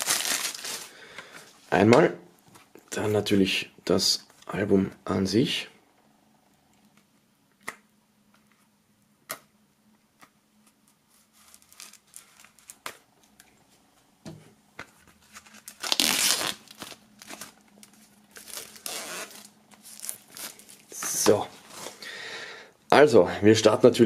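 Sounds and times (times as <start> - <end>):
plastic wrap crinkling and tearing: 0.0 - 1.0, 11.2 - 13.4, 15.2 - 22.0.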